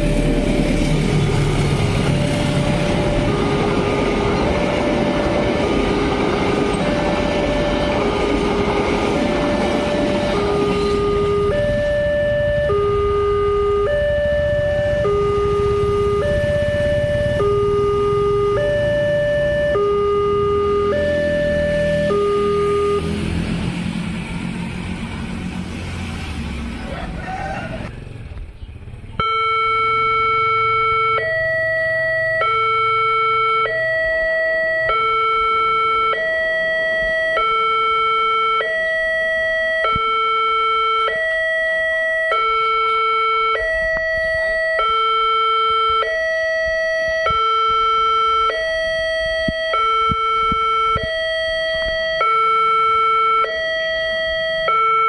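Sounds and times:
level crossing alarm two-tone: 0:00.0 - 0:23.3, 0:29.2 - 0:55.0
car driving past: 0:21.0 - 0:29.0.

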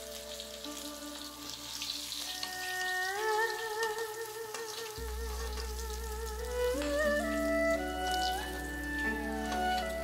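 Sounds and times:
single-line melody: 0:02.4 - 0:10.0.

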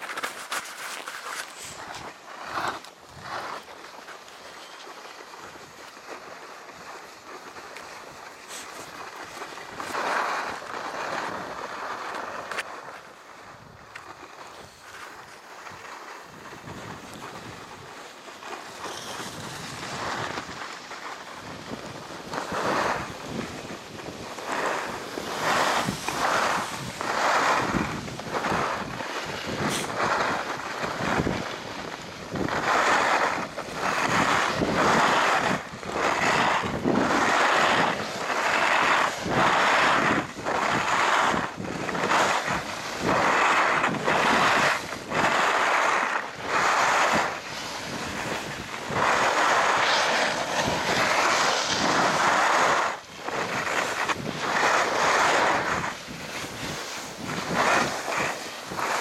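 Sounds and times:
skis scraping over snow: 0:00.0 - 0:59.0
wind buffeting microphone: 0:15.6 - 0:18.0, 0:18.6 - 0:59.0.

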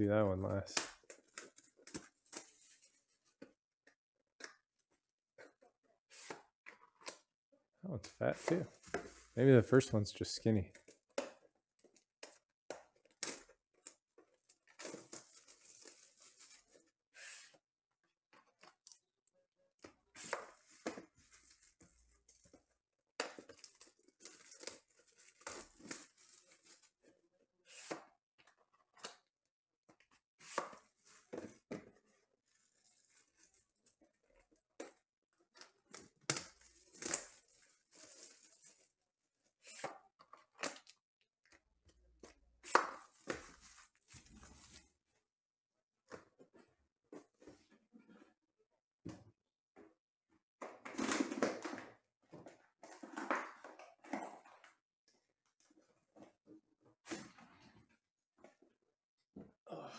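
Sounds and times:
plastic shrink wrap crinkling: 0:14.6 - 0:16.8, 0:36.5 - 0:38.9, 0:43.1 - 0:44.8.

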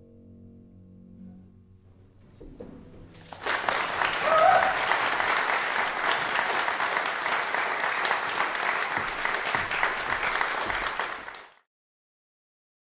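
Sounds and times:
audience applauding: 0:03.1 - 0:11.7.

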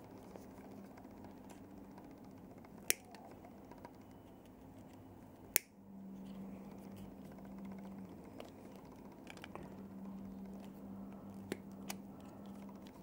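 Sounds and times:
steady low hum: 0:00.0 - 0:13.0
sharp plastic clicks: 0:01.4 - 0:05.8.

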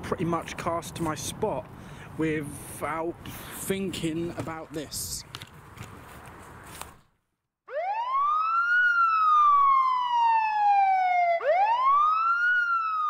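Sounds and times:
police siren wail: 0:07.7 - 0:13.0.

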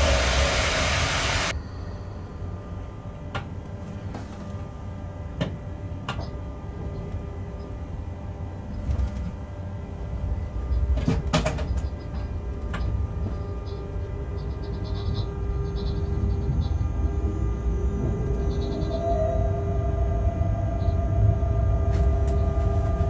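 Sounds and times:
loud hiss: 0:00.0 - 0:01.5
train rumbling: 0:00.0 - 0:01.6, 0:07.4 - 0:23.0.

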